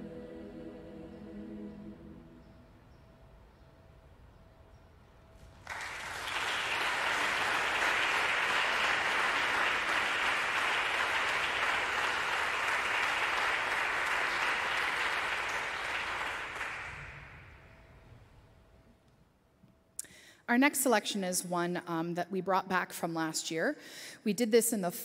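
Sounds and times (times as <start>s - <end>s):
audience applauding: 5.5s - 17.6s.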